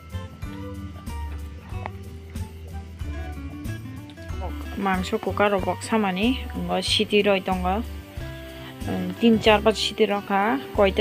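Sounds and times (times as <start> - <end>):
held instrumental notes: 0.0 - 11.0.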